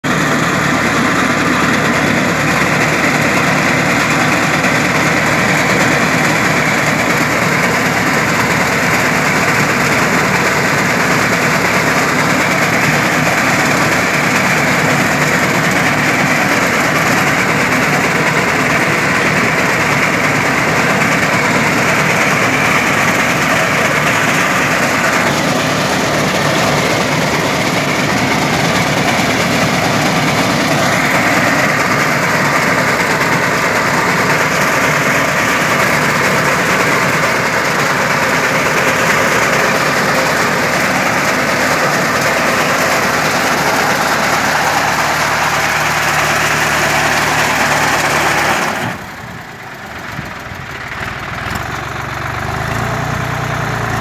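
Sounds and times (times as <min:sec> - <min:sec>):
tractor engine running: 0:00.0 - 0:54.0
reaper cutting crop: 0:00.1 - 0:49.2.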